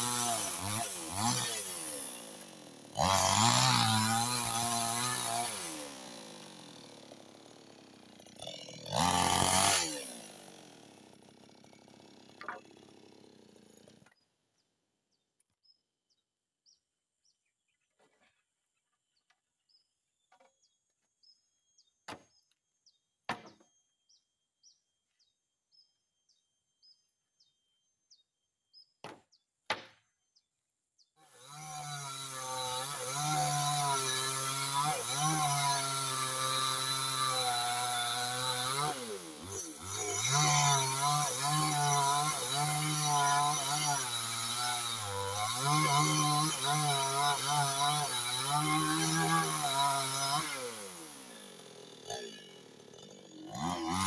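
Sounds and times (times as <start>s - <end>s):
chainsaw cutting wood: 0.0s - 14.2s, 23.3s - 24.2s, 29.0s - 30.2s, 31.2s - 54.0s
sharp wooden knocks: 12.4s - 12.7s, 23.3s - 23.7s, 29.0s - 30.1s.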